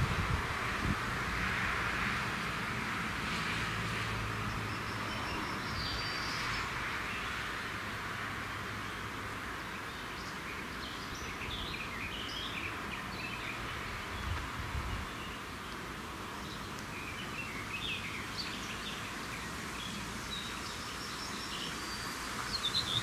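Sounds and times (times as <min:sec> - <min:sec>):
wind hiss: 0:00.0 - 0:08.4, 0:10.2 - 0:23.0
birds chirping: 0:08.9 - 0:23.0.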